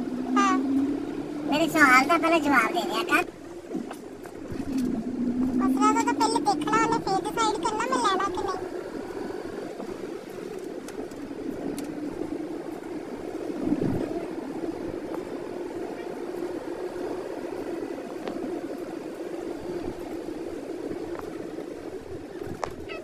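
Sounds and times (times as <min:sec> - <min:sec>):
car driving on wet road: 0:01.4 - 0:08.7
faint clicks: 0:09.8 - 0:12.8, 0:18.1 - 0:18.9.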